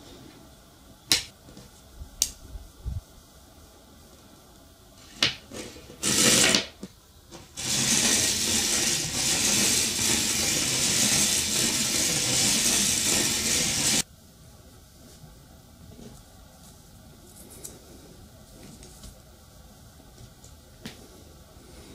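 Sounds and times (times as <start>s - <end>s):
magnets rattling against wire coil: 7.6s - 14.0s.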